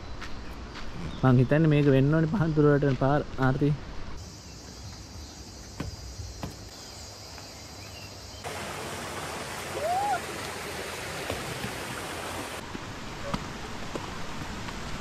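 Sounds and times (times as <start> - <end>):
insect hum: 4.2 - 12.6
footsteps on stone steps: 4.8 - 7.6, 10.4 - 12.3
stream rushing over rock: 8.4 - 15.0
rising-and-falling call: 9.6 - 10.4.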